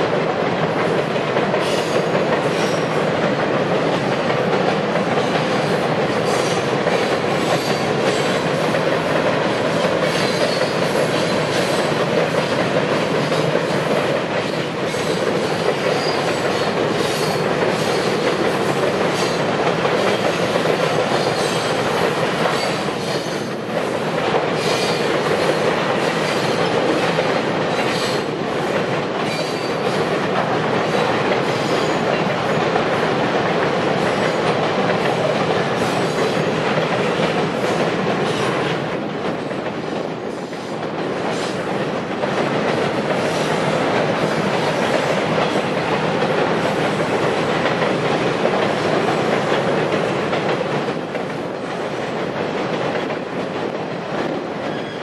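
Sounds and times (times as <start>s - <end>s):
train wheels on rails: 0.0s - 55.0s
faint high wheel squeals: 54.7s - 55.0s.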